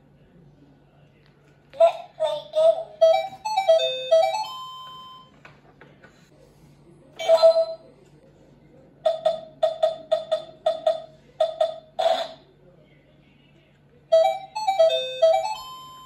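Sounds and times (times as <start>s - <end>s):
toy laptop beeping tune: 3.0s - 5.4s, 14.1s - 16.0s.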